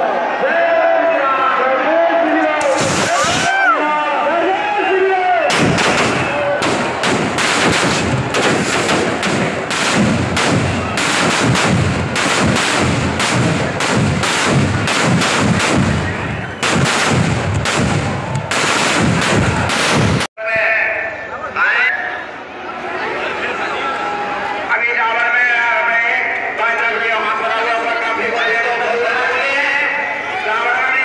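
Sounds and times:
firecrackers banging rapidly: 2.6 - 3.7, 5.5 - 20.3.

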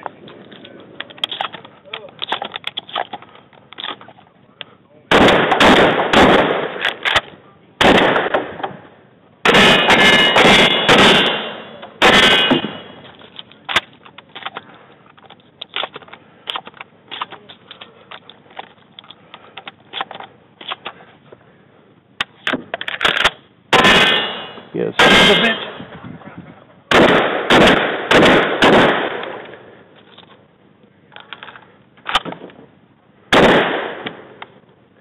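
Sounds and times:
shotgun blasts: 5.1 - 7.2, 7.8 - 8.8, 9.4 - 13.0, 23.7 - 25.8, 26.9 - 29.5, 33.3 - 34.4.

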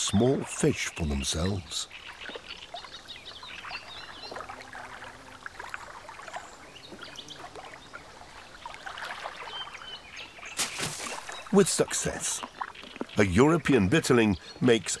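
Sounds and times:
water splashes and drips: 0.0 - 15.0.

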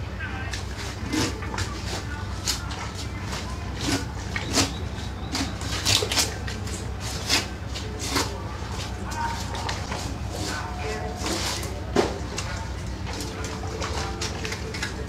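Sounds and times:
steady low hum: 0.0 - 15.0
knife scraping through fish skin: 0.7 - 12.4.

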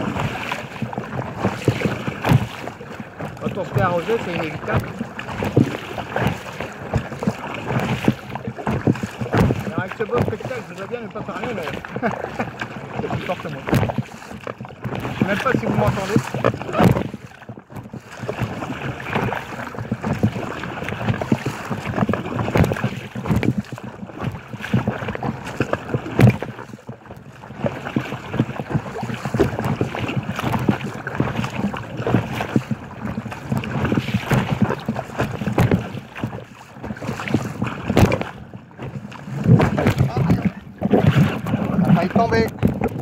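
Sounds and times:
waves slapping kayak hull: 0.0 - 43.0
wind buffeting microphone: 27.6 - 43.0.

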